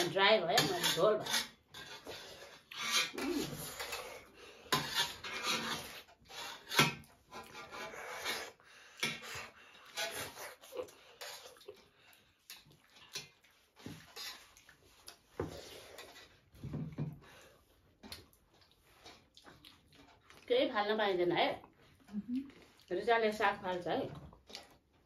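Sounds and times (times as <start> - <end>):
spoons scraping metal plates: 0.0 - 11.6.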